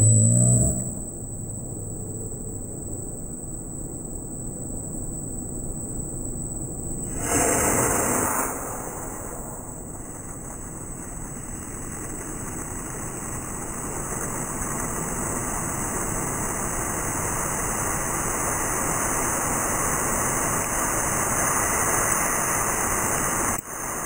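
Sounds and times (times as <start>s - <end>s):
water hissing from fire nozzle: 7.1s - 24.0s.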